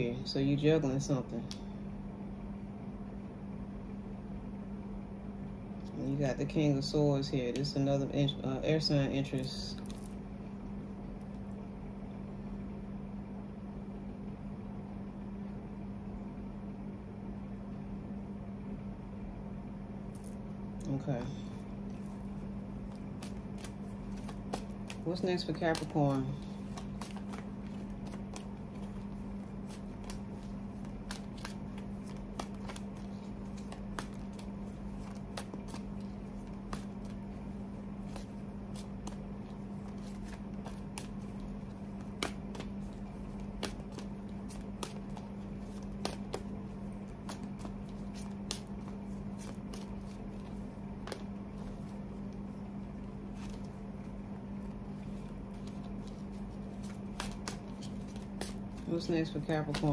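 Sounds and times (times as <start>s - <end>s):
steady low hum: 0.0s - 59.9s
cards being shuffled: 20.1s - 59.9s.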